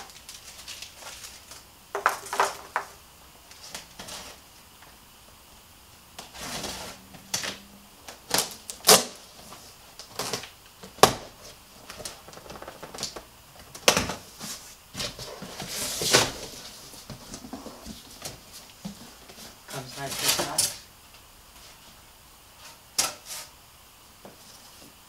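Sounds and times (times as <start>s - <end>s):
tape tearing: 6.2s - 11.3s
cardboard flaps clicking and scraping: 6.2s - 20.6s.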